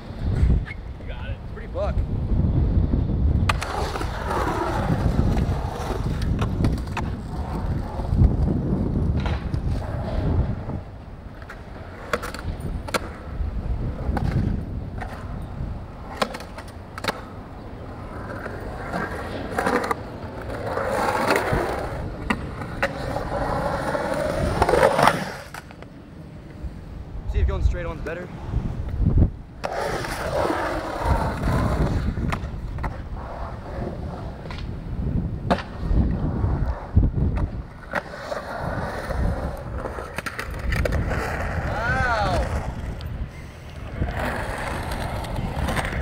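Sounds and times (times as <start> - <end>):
skateboard wheels rolling on concrete: 0.0 - 46.0
skateboard clacking on concrete: 3.4 - 10.2, 11.3 - 13.3, 14.0 - 26.6, 36.6 - 43.1, 43.7 - 46.0.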